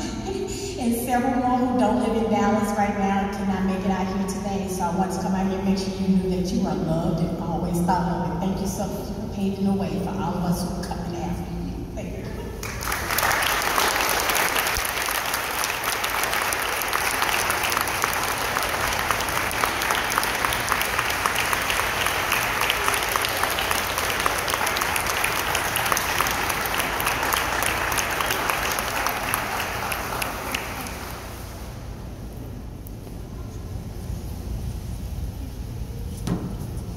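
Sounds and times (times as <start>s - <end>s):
hands clapping: 12.6s - 31.4s.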